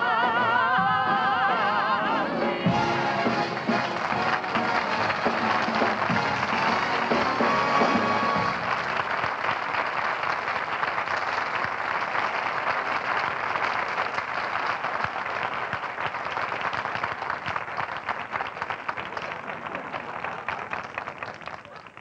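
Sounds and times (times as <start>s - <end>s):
audience applauding: 2.7s - 22.0s.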